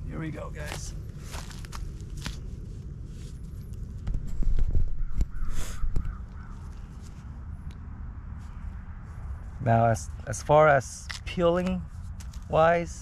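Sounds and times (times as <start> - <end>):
low rumbling noise: 0.0 - 10.3
crow cawing: 5.0 - 6.9.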